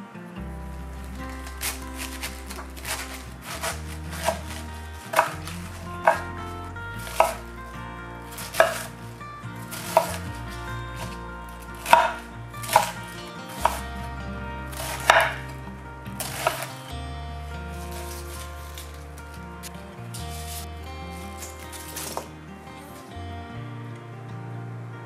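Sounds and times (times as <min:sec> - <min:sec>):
knife chopping cabbage on board: 0:01.4 - 0:06.4, 0:07.0 - 0:07.4, 0:08.3 - 0:09.0, 0:09.7 - 0:10.4, 0:11.8 - 0:13.9, 0:14.7 - 0:15.5, 0:16.2 - 0:16.7.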